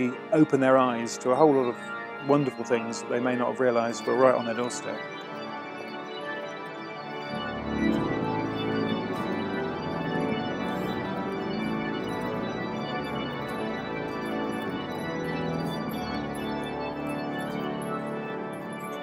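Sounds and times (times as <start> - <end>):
pipe organ chords: 0.0 - 19.0.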